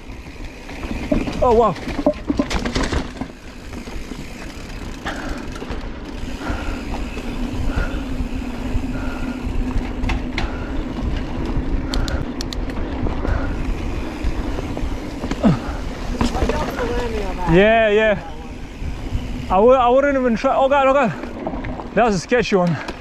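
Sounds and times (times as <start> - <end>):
bike tyres rolling on dirt: 0.0 - 23.0
sharp clicks and rattles: 0.5 - 18.2
wind rumbling on microphone: 6.0 - 20.1.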